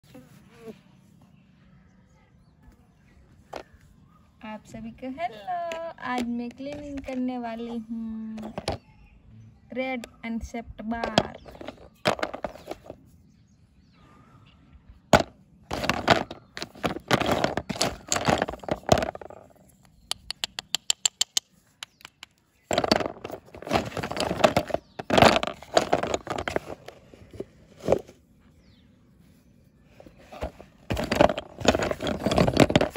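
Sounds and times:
brittle pieces clicking and scraping: 0:15.7 - 0:27.4, 0:30.9 - 0:32.9.

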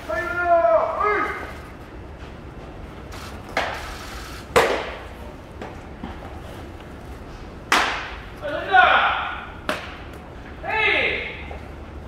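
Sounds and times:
baseball smacking into mitt: 0:04.5 - 0:05.0, 0:07.7 - 0:08.2, 0:09.6 - 0:10.2.

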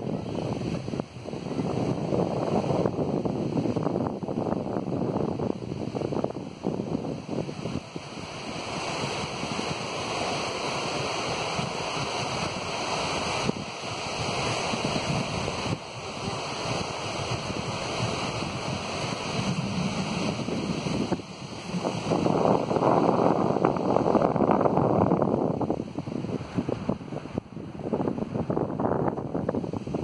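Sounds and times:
surf washing onto beach: 0:00.0 - 0:30.0
wind buffeting microphone: 0:00.0 - 0:30.0.

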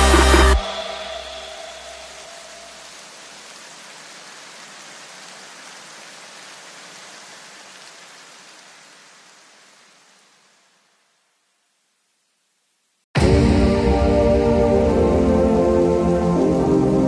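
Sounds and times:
electronic white-noise wash: 0:00.0 - 0:03.8.

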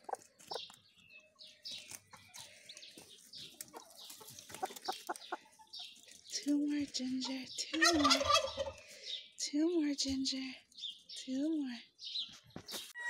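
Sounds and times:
hen clucking: 0:00.0 - 0:09.0.

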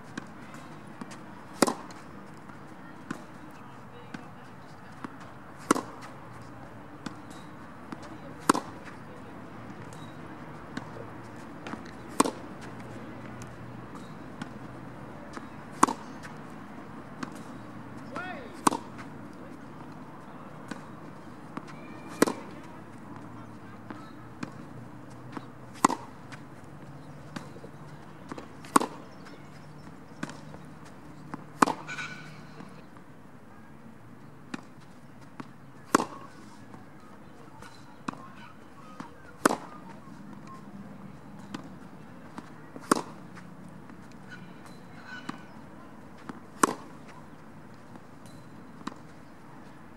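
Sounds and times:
distant tennis hits: 0:00.0 - 0:03.2, 0:04.9 - 0:06.4, 0:07.0 - 0:33.0, 0:34.5 - 0:49.8
tennis ball bouncing: 0:00.0 - 0:03.5, 0:04.1 - 0:33.0, 0:34.2 - 0:49.7
tennis racket hitting ball: 0:00.2 - 0:02.0, 0:05.6 - 0:06.1, 0:07.0 - 0:09.0, 0:09.8 - 0:16.5, 0:17.2 - 0:19.2, 0:20.6 - 0:30.6, 0:31.3 - 0:32.4, 0:35.8 - 0:36.4, 0:38.9 - 0:40.0, 0:41.4 - 0:45.6, 0:46.2 - 0:47.1.

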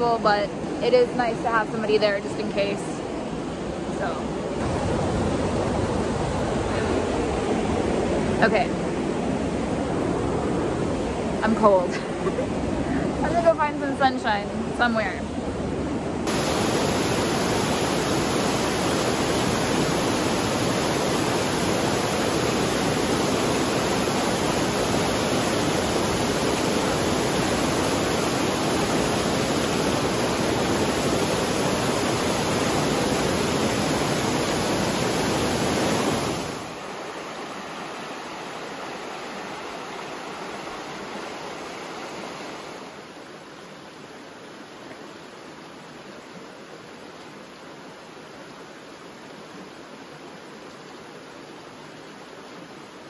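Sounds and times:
waterfall rushing: 0:00.0 - 0:43.4
creek running over rocks: 0:00.0 - 0:53.0.

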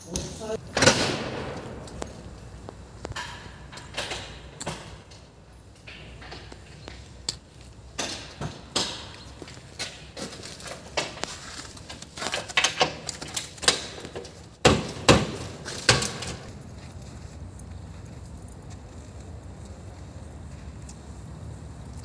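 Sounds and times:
steady background noise: 0:00.0 - 0:22.0
sharp knocks and clicks: 0:00.8 - 0:10.1.

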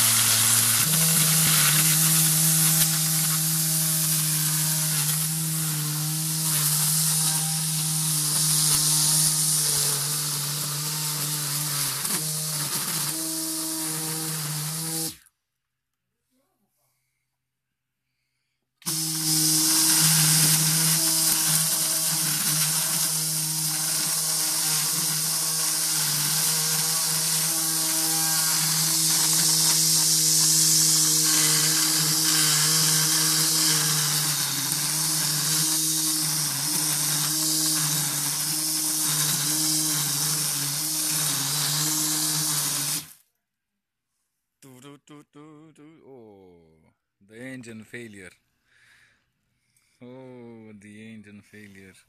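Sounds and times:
nylon line cutting grass: 0:00.0 - 0:15.2, 0:18.9 - 0:43.2
string trimmer motor humming: 0:00.0 - 0:15.2, 0:18.8 - 0:43.2.

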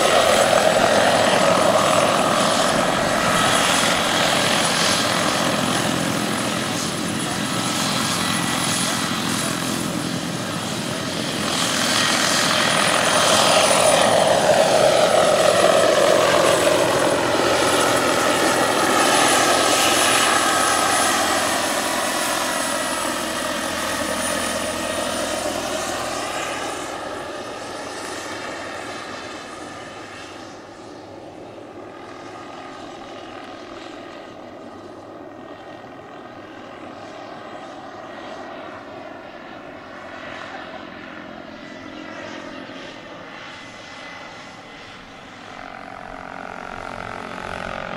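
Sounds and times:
helicopter rotor noise: 0:00.0 - 0:47.9
turbine whine: 0:00.0 - 0:47.9.

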